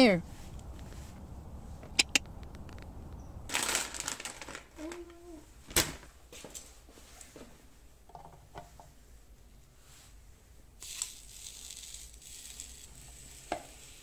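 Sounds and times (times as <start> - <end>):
dough sizzling on hot plates: 10.8 - 14.0.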